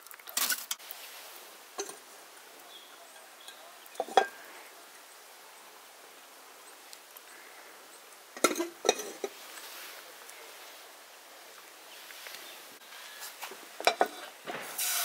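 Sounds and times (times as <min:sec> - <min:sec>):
clinks of metal and porcelain: 0:03.4 - 0:04.4, 0:08.4 - 0:09.3, 0:13.8 - 0:14.2.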